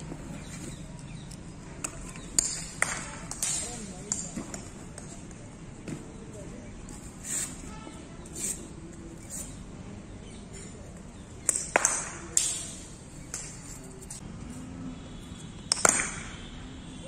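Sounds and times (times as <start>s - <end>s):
ball landing on concrete: 11.4s - 12.6s, 15.6s - 16.4s
cricket bat hitting ball: 15.7s - 16.4s.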